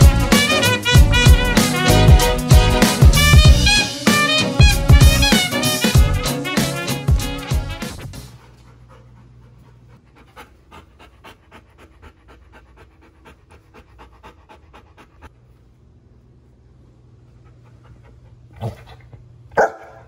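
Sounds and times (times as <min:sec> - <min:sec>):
music: 0:00.0 - 0:08.4
dog panting: 0:07.4 - 0:15.7, 0:17.2 - 0:19.8.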